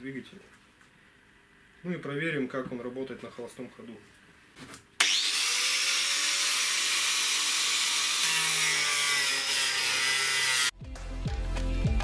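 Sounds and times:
angle grinder cutting plastic: 5.0 - 10.7.

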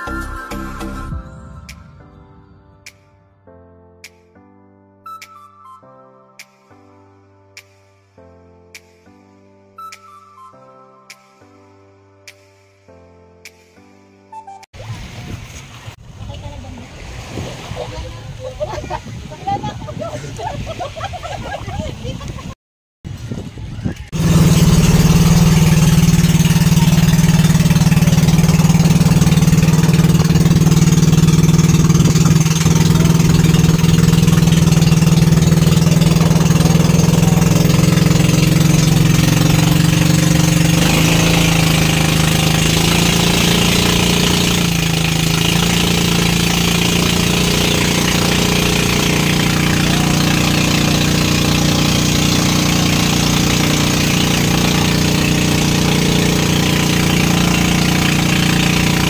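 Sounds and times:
wind: 14.7 - 59.0
boat engine drone: 24.1 - 59.0
water hissing: 24.2 - 59.0.

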